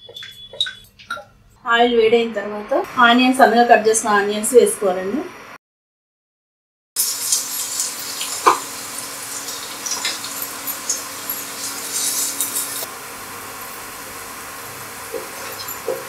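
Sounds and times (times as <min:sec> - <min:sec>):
onions sizzling in hot oil: 0:07.0 - 0:16.0.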